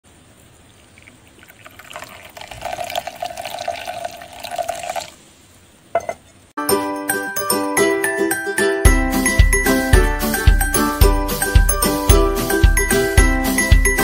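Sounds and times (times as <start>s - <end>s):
tea pouring into a cup: 0.7s - 5.2s.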